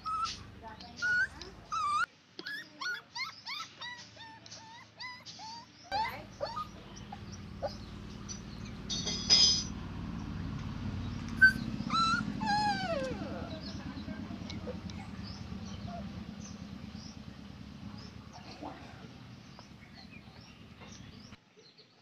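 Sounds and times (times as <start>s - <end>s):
steady low hum: 0.0s - 2.1s, 5.9s - 21.4s
dog whimpering and yipping: 0.0s - 9.0s, 11.3s - 16.2s.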